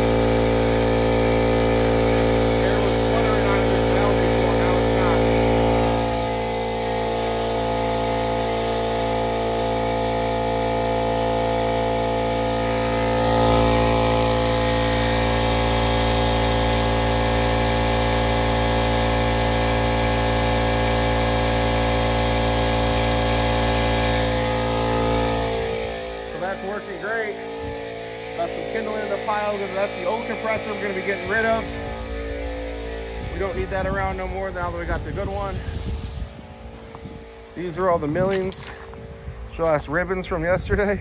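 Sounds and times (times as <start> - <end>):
air compressor running: 0.0 - 41.0.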